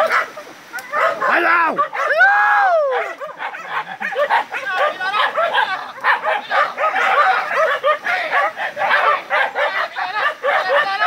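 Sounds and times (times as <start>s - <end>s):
dogs barking and yelping: 0.0s - 2.3s, 2.9s - 11.0s.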